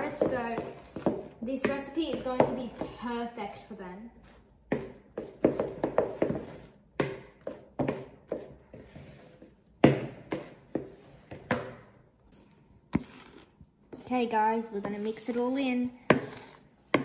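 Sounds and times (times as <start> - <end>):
wooden spoon stirring batter: 0.0 - 17.0.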